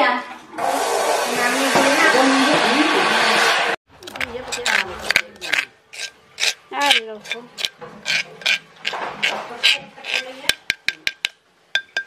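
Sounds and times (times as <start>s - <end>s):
spoon scraping stone mortar: 4.0s - 12.0s
spoon tapping on stone: 9.6s - 12.0s.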